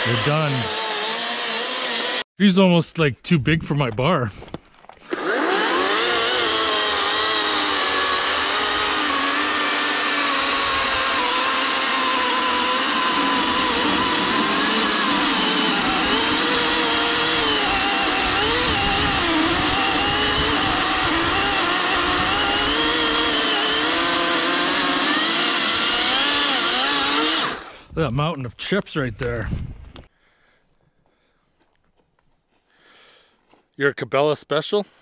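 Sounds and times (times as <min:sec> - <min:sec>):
chainsaw cutting log: 0:00.0 - 0:02.3, 0:05.0 - 0:27.9.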